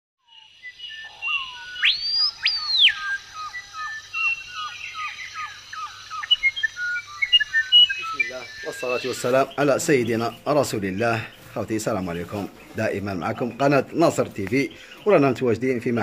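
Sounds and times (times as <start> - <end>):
bird short repeated chirps: 0.3 - 9.6
bird high whistles: 0.4 - 9.5.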